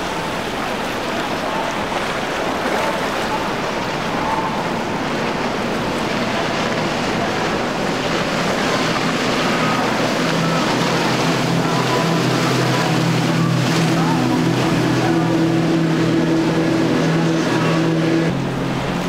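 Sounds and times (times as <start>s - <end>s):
powerboat engines at speed: 0.0s - 19.0s
rush of wake and spray: 0.0s - 19.0s.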